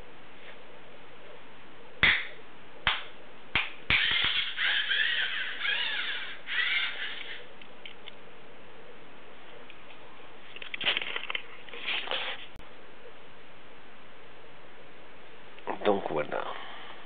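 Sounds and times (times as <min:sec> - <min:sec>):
hands clapping: 0:02.9 - 0:03.8
robot servo motors whirring: 0:04.0 - 0:07.4.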